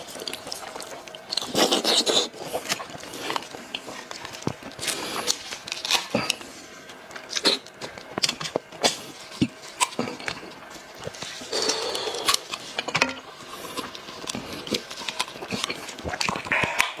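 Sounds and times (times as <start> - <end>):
chewing with wet smacks: 0.0 - 17.0.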